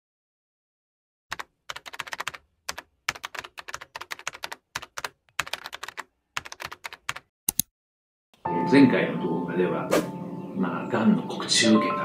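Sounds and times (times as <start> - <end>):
keyboard key clicks: 1.3 - 7.7.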